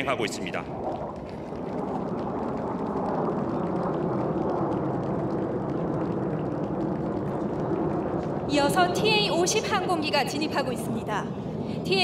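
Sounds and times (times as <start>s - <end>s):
jet fighters flying past: 0.0s - 12.0s.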